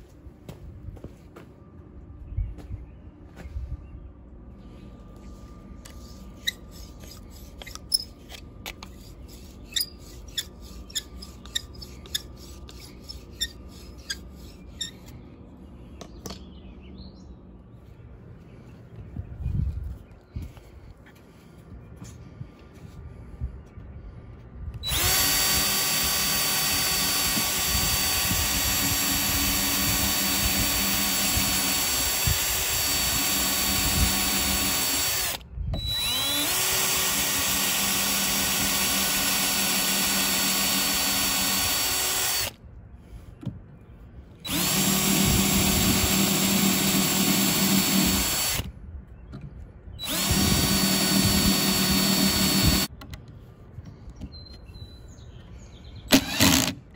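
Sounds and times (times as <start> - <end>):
cordless drill whining: 24.8 - 42.6, 44.4 - 48.7, 50.0 - 52.9, 56.1 - 56.8.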